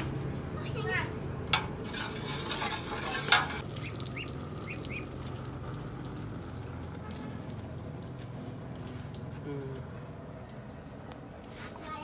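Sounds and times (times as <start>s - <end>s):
spoon stirring liquid in a pot: 1.6s - 3.6s.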